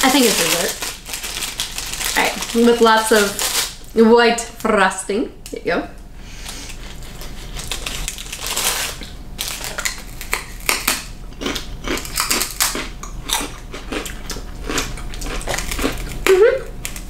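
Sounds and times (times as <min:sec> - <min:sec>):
people chewing crunchy rice cakes: 0:06.4 - 0:17.0.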